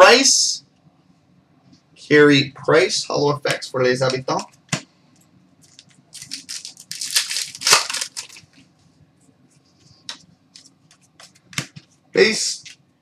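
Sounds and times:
foil wrapper tearing and crinkling: 5.7 - 8.6.

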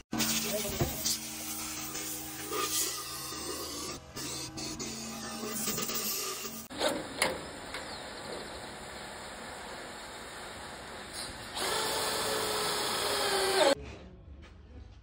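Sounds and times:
cordless drill driving screw into steel: 11.2 - 13.8.

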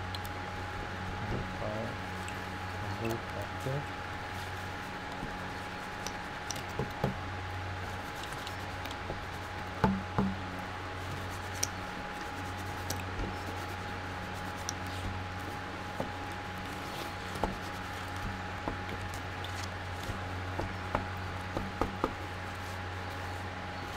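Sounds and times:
steady low hum: 0.0 - 23.9
board knocking on table: 9.8 - 10.4.

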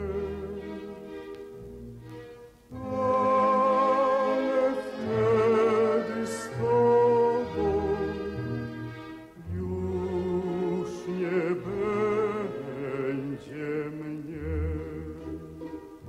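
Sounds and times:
slow orchestral music: 0.0 - 16.0.

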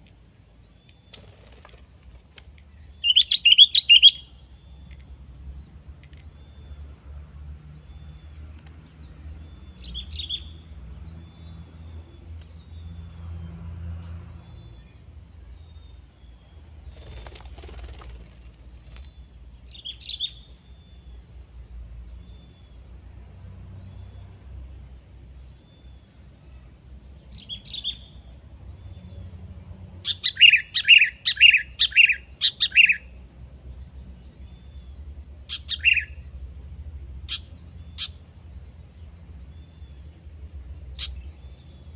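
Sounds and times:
bulbul calling: 2.8 - 4.4, 30.0 - 33.1, 35.5 - 36.3.

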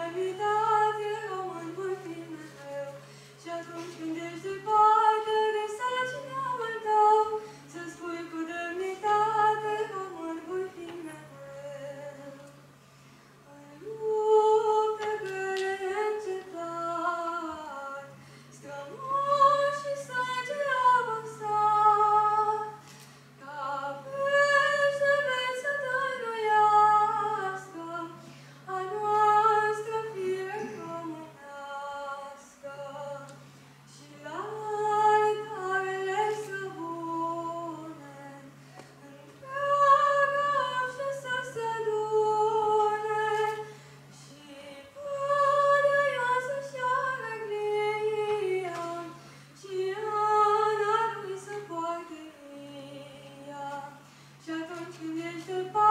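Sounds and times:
low steady hum: 0.0 - 55.9
boy singing into a microphone: 29.9 - 31.3.

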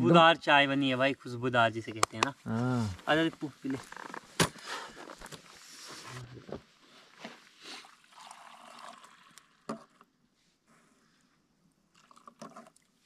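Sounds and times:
tea pouring into a cup: 7.8 - 10.0, 11.9 - 12.8.

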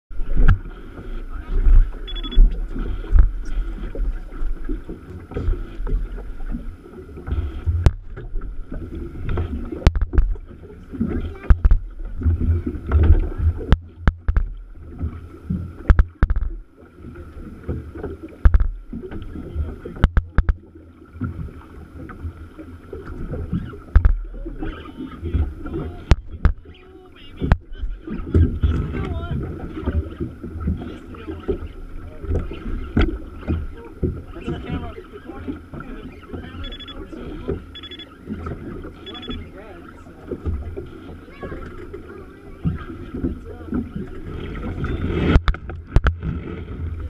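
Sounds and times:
water lapping at boat hull: 0.1 - 47.0
sharp knocks and clicks: 9.3 - 10.4, 11.4 - 14.6, 15.8 - 16.6, 18.0 - 19.3, 19.9 - 20.6, 23.9 - 24.2, 26.1 - 26.7, 45.2 - 46.3.

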